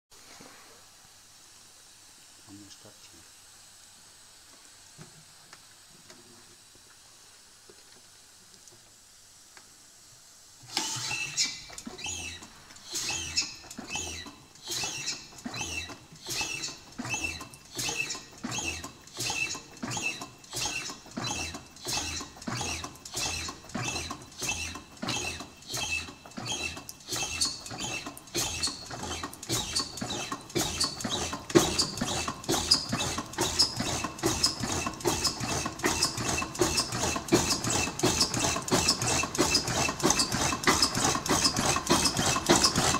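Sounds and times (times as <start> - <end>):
diesel engine starting: 10.6 - 42.9.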